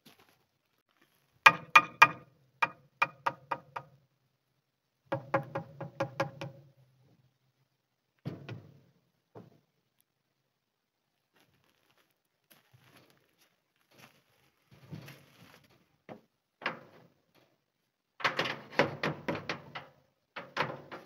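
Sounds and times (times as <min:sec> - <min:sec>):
hammer driving nails into wood: 0:01.5 - 0:03.9.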